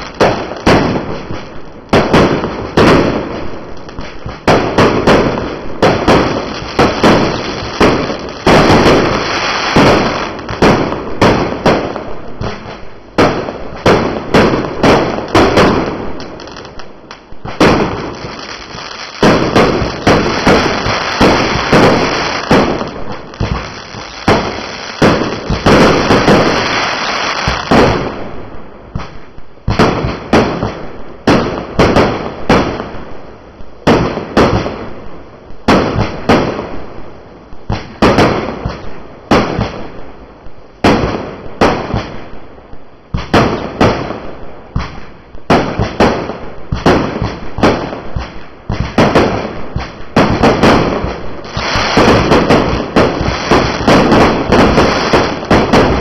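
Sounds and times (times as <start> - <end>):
fireworks launching and bursting: 0.0 - 56.0.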